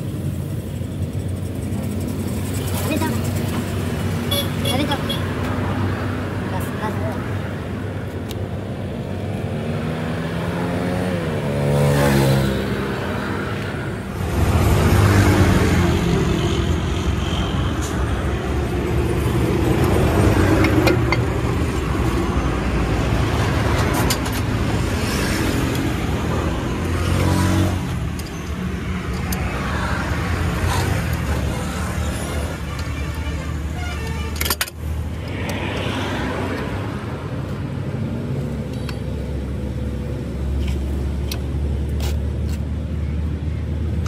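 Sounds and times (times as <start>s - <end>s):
vehicle engines rumbling: 0.0s - 44.0s
sharp clicks: 34.3s - 36.7s.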